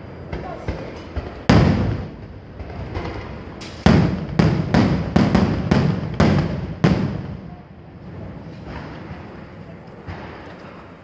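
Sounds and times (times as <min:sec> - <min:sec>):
rumbling echo: 0:00.0 - 0:10.5
firework shells bursting: 0:00.3 - 0:07.6.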